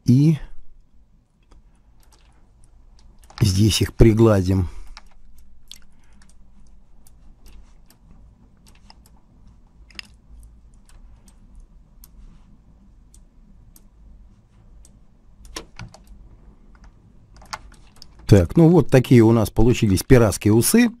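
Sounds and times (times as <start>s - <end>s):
faint low hum: 0.0s - 21.0s
mouse and keyboard clicks: 5.0s - 12.2s.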